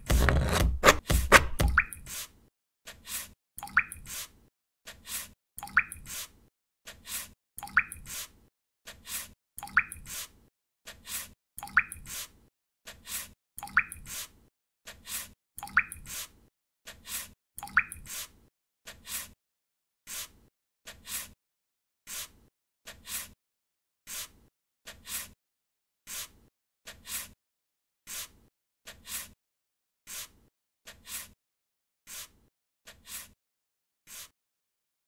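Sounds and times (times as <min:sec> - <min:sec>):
brush swishing on paper: 0:00.0 - 0:03.3, 0:18.1 - 0:19.4, 0:20.1 - 0:21.4, 0:22.1 - 0:23.4, 0:24.1 - 0:25.4, 0:26.1 - 0:27.4, 0:28.1 - 0:29.4, 0:30.1 - 0:31.4, 0:32.1 - 0:33.4, 0:34.1 - 0:34.4
water drip plopping: 0:03.6 - 0:04.0, 0:05.6 - 0:06.1, 0:07.6 - 0:08.1, 0:09.6 - 0:10.0, 0:11.6 - 0:12.0, 0:13.6 - 0:14.1, 0:15.6 - 0:16.1, 0:17.6 - 0:18.0.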